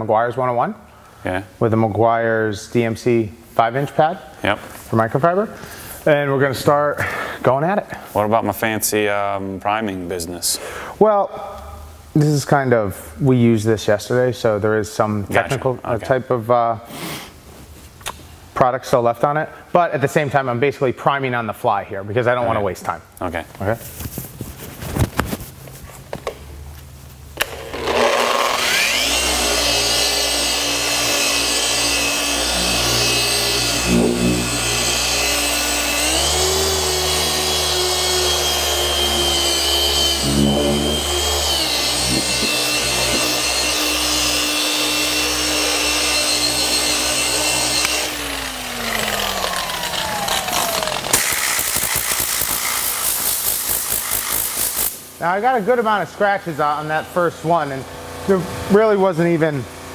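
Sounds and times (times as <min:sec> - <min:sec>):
orbital polisher whining: 0:27.4 - 0:55.0.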